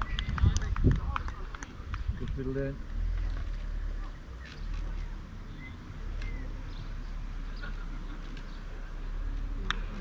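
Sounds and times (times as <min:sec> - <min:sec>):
low wind rumble: 0:00.0 - 0:10.0
bird chirps: 0:04.0 - 0:08.7.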